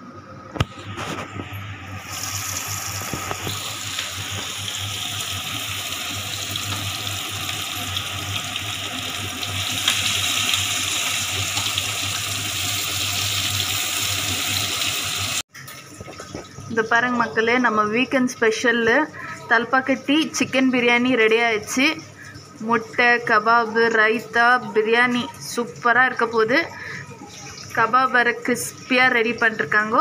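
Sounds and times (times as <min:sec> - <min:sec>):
chicken sizzling in hot oil: 0:01.9 - 0:15.5.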